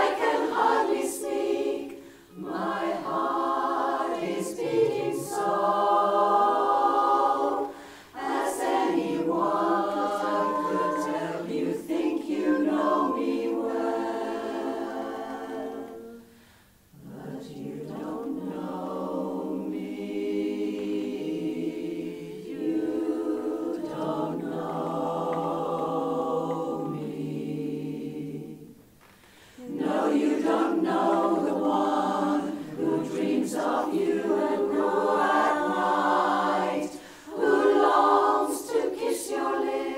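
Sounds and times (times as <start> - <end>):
women's chorus singing a cappella: 0.0 - 39.9.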